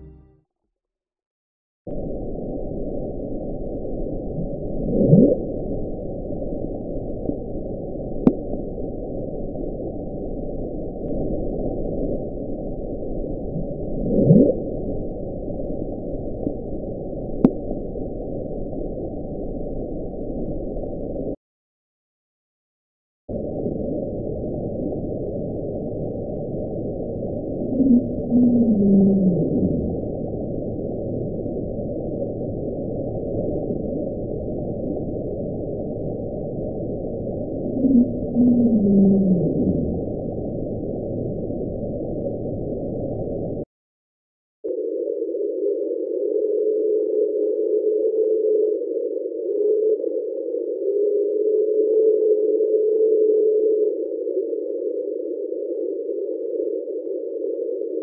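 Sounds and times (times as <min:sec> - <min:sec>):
muffled low rushing noise: 0:23.3 - 0:43.6.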